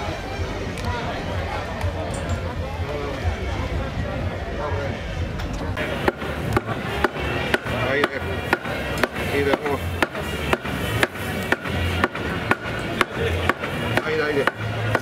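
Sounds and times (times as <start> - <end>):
music playing: 0.0 - 15.0
cleaver chopping meat on wood: 6.0 - 15.0.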